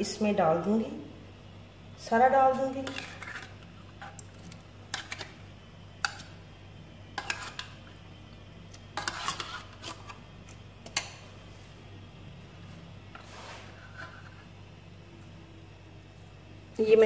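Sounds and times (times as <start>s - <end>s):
steady low hum: 0.0s - 17.0s
spoon scraping inside tin can: 2.8s - 4.2s, 7.2s - 7.8s, 9.0s - 10.2s.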